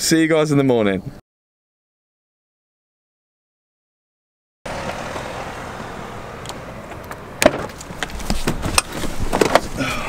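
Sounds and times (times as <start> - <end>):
outdoor background noise: 4.7 - 10.0
sharp knocks and clicks: 6.4 - 9.7.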